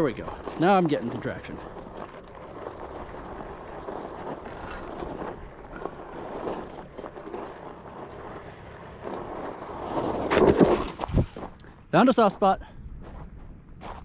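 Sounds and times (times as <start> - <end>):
wind buffeting microphone: 10.6 - 11.6.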